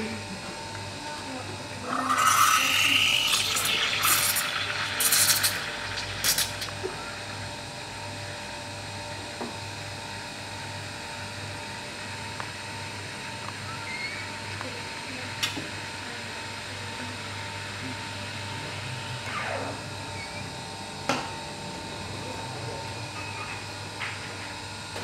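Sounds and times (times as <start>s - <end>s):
steam wand frothing milk: 1.8s - 7.5s.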